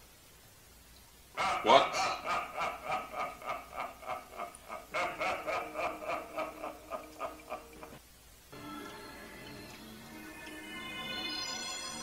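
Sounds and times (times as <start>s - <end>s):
man laughing hard: 1.4s - 8.0s.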